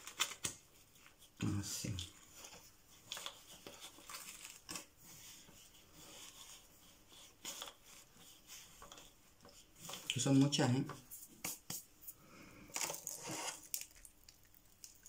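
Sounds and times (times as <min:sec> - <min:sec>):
soft scrapes: 0:05.0 - 0:11.4.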